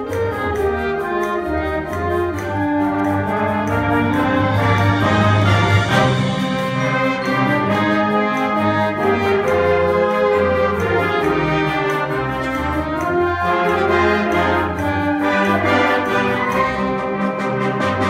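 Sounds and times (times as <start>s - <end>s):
concert band playing chords: 0.0s - 18.0s.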